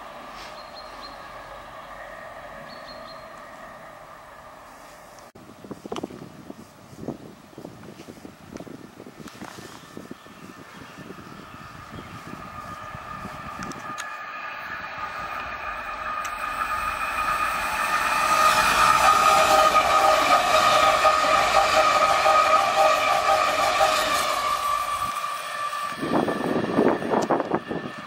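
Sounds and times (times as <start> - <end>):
electric train passing: 0.0 - 5.4, 9.9 - 28.0
high whine: 10.0 - 28.0.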